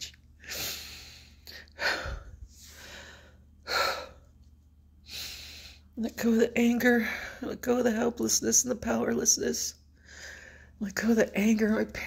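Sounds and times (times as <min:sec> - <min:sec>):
woman breathing deeply: 0:00.4 - 0:04.3, 0:05.0 - 0:06.0, 0:10.0 - 0:10.8.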